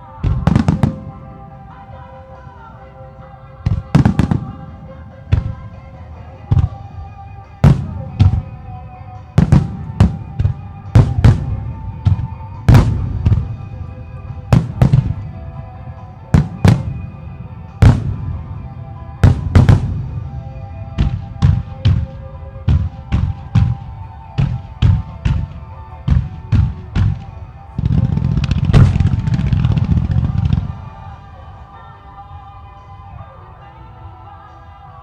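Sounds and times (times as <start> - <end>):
music playing: 0.0 - 35.0
fireworks booming: 9.4 - 15.4, 19.2 - 30.9.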